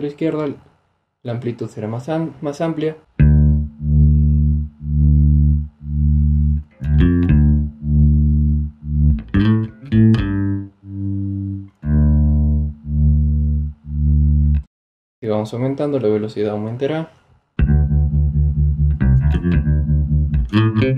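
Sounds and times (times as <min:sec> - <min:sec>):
electric bass with tremolo: 0:03.2 - 0:14.7, 0:17.6 - 0:20.9.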